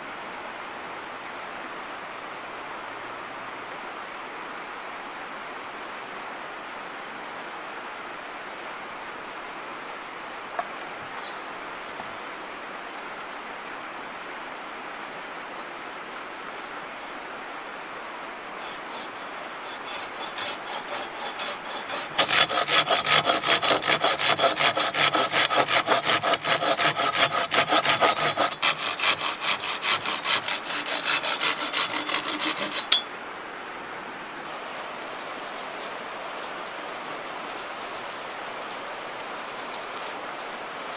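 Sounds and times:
hand saw cutting bamboo: 0:18.7 - 0:33.0.

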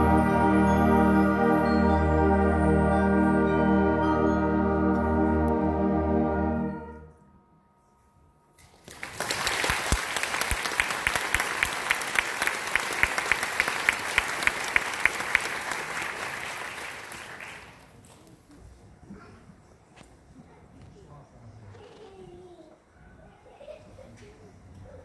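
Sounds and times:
audience applauding: 0:08.7 - 0:18.0.

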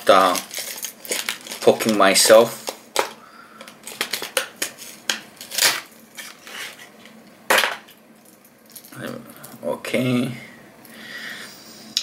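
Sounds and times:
plastic packaging crackling: 0:00.0 - 0:06.9
loud packaging rustles: 0:00.0 - 0:07.1.

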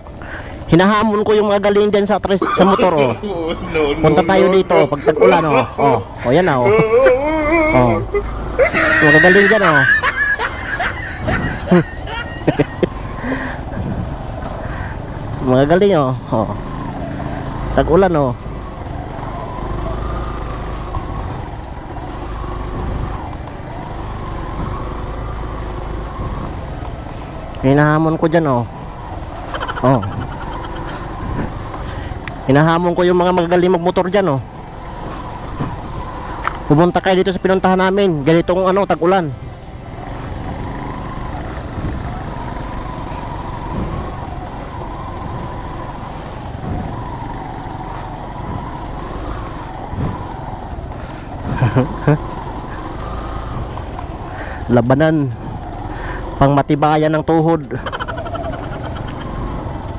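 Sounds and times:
small motorcycle engine running: 0:39.4 - 0:56.4.

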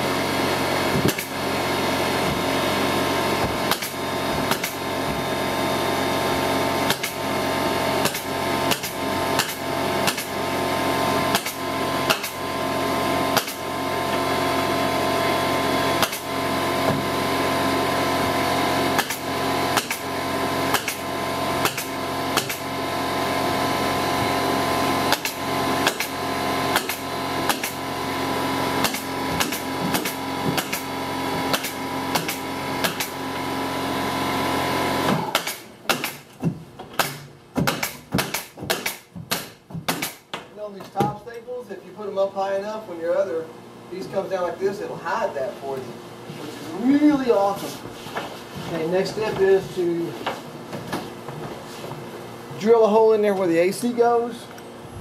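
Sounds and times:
steady mechanical hum: 0:00.0 - 0:55.0
staple gun firing: 0:35.3 - 0:36.2.

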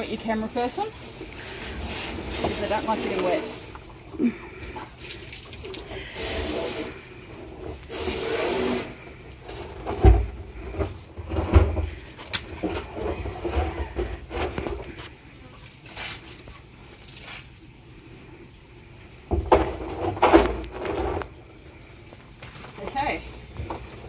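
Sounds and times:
hose nozzle spraying water: 0:00.0 - 0:04.0, 0:04.8 - 0:09.3.

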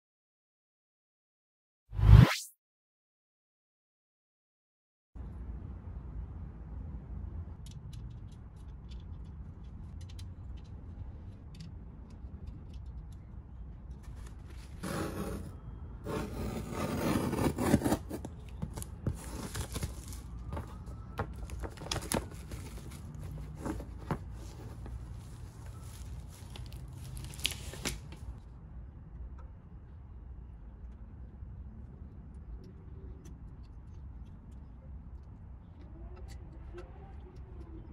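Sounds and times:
packaging clicks and crackles: 0:18.5 - 0:28.2
plastic wrap tearing and crinkling: 0:25.2 - 0:28.2.

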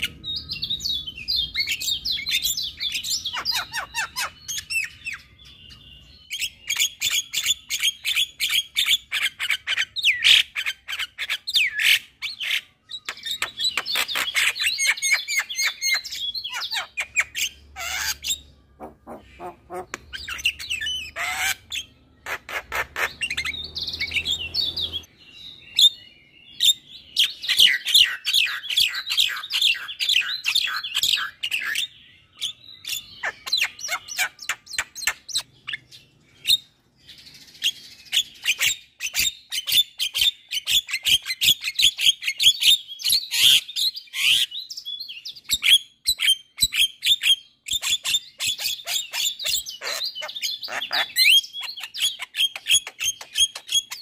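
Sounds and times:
myna chattering song: 0:18.8 - 0:20.6.

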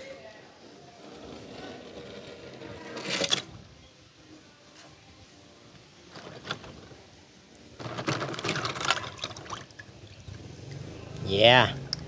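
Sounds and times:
toy car splashing into water: 0:07.8 - 0:09.9.

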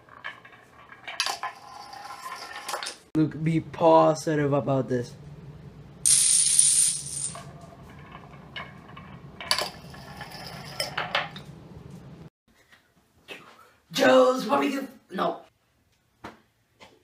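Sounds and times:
falling dominoes rattling: 0:00.1 - 0:03.1, 0:06.1 - 0:08.2.

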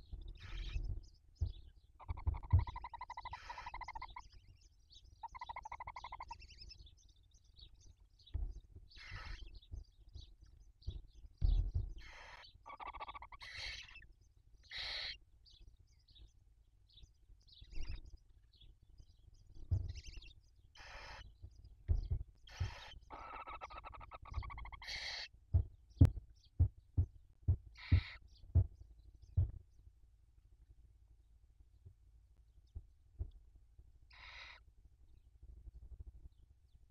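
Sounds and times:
faint high twittering: 0:00.0 - 0:16.3, 0:16.9 - 0:28.7
low thumps in nest: 0:00.1 - 0:03.0, 0:08.2 - 0:12.2, 0:19.6 - 0:20.2, 0:21.4 - 0:24.8, 0:25.6 - 0:28.8, 0:29.4 - 0:29.6
owl chicks hissing begging calls: 0:02.0 - 0:04.3, 0:05.2 - 0:06.6, 0:09.0 - 0:09.4, 0:12.0 - 0:14.0, 0:14.6 - 0:15.2, 0:20.8 - 0:21.4, 0:22.5 - 0:25.3, 0:27.8 - 0:28.2, 0:34.1 - 0:34.6.

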